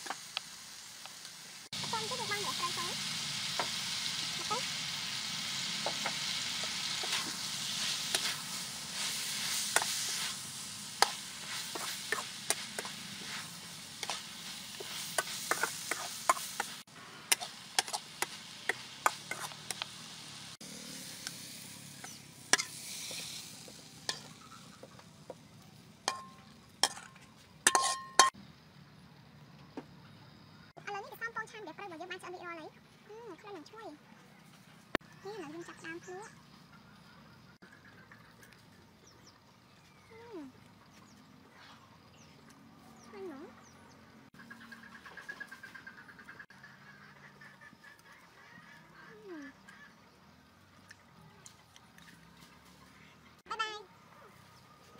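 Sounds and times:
wok frying sizzle: 0.0 - 28.4
metal clinks on pan: 26.1 - 28.4
metal ladle scraping and clicking: 26.1 - 28.4.

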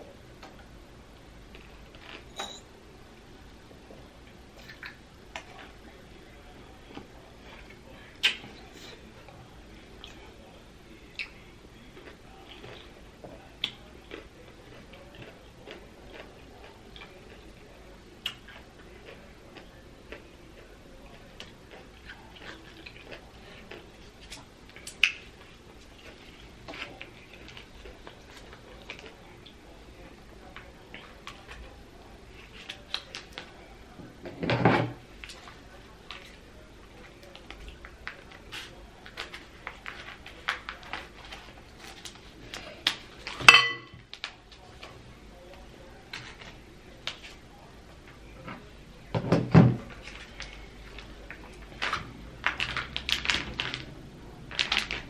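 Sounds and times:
clink against glass bowl: 2.3 - 2.7, 43.5 - 43.9
plastic wrapper crinkling: 50.1 - 53.9, 54.5 - 55.0.

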